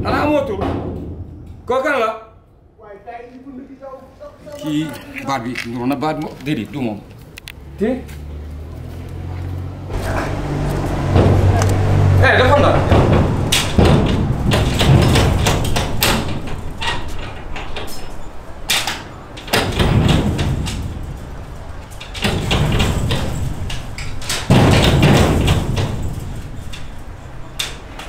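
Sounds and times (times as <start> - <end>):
hand banging on metal gate: 0.0 - 1.6, 9.9 - 18.0, 18.6 - 28.0
metal gate rattling: 9.9 - 28.0.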